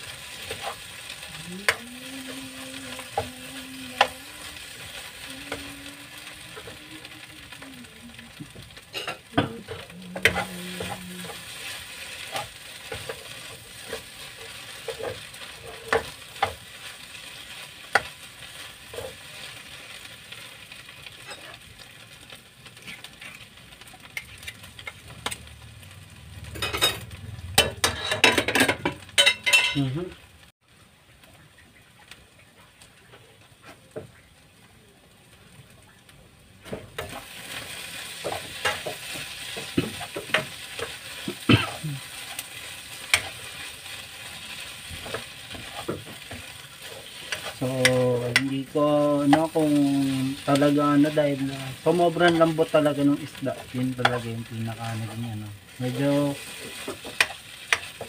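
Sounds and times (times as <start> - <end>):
metal spatula scraping a pan: 0.0 - 3.3, 8.7 - 19.9, 21.0 - 21.7, 22.7 - 25.4, 26.4 - 29.8, 36.7 - 55.1
food sizzling in a pan: 0.0 - 58.0.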